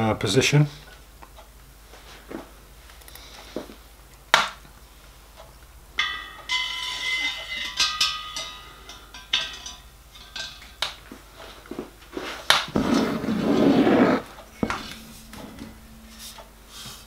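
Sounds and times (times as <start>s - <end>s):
metal rod clinking on boiler: 6.0s - 11.2s, 14.4s - 16.4s.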